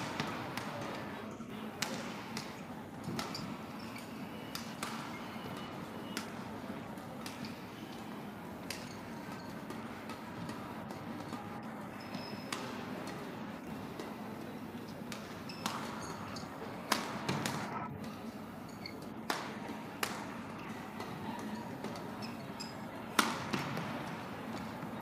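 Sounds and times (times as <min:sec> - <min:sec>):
sports hall noise: 0:00.0 - 0:25.0
racket hitting shuttlecock: 0:01.7 - 0:05.2, 0:08.6 - 0:14.2, 0:15.0 - 0:24.9.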